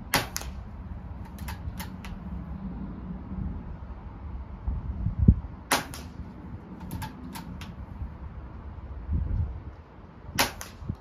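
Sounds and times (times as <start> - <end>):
low steady rumble: 0.0 - 11.0
air rifle shot cracks: 0.1 - 0.6, 5.7 - 6.2, 10.3 - 11.0
metallic clicks of rifle action: 1.2 - 2.2.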